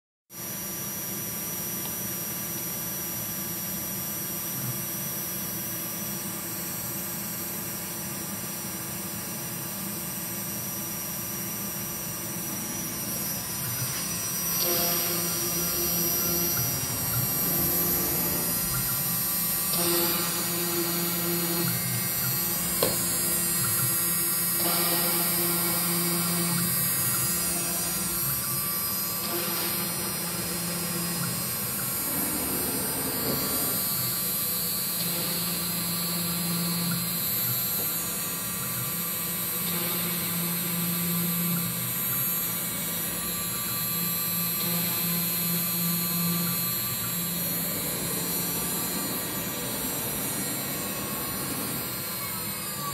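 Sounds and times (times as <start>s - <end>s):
spindle whine: 10.1s - 52.9s
low motor hum: 12.0s - 38.0s, 43.3s - 52.9s.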